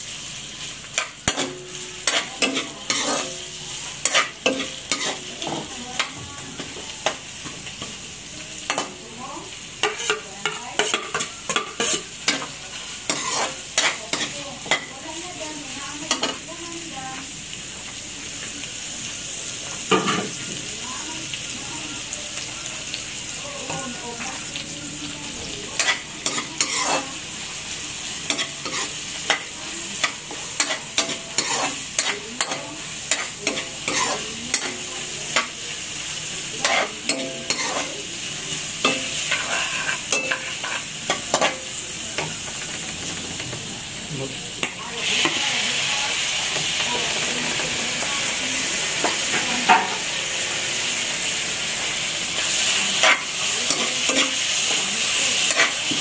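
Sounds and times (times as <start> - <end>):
spatula scraping a wok: 0.0 - 8.0, 8.6 - 15.3, 25.4 - 44.0, 44.6 - 56.0
onions sizzling in hot oil: 0.0 - 56.0.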